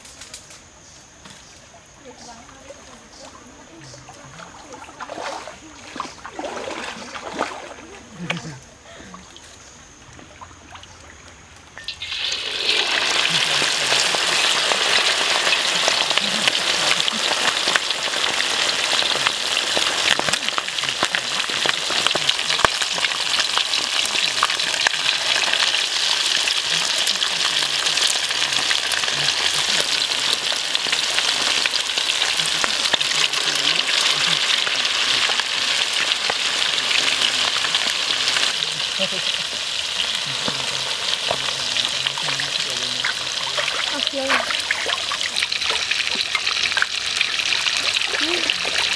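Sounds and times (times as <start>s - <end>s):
chicken frying in hot oil: 11.8s - 48.9s.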